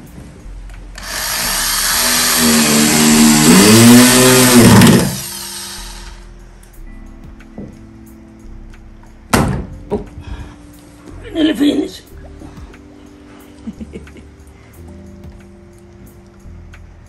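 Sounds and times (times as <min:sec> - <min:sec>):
electric drill driving screw: 0:01.0 - 0:06.3.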